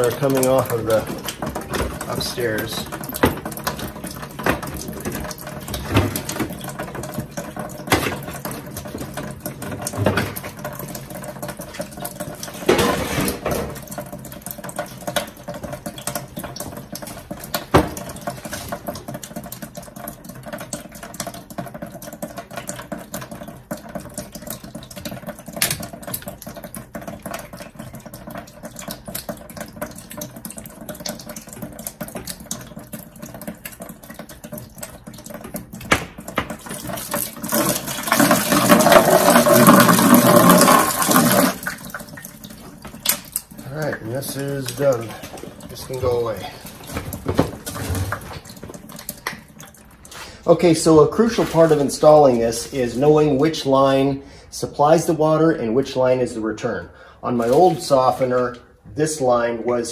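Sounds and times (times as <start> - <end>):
water running from pipe: 0.0 - 59.9.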